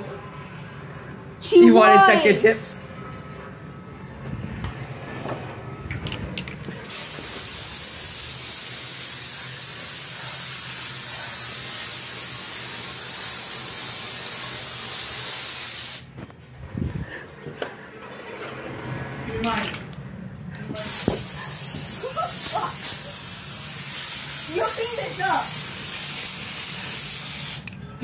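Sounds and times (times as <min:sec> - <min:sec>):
aerosol can spraying: 0:06.8 - 0:16.1, 0:20.8 - 0:27.7.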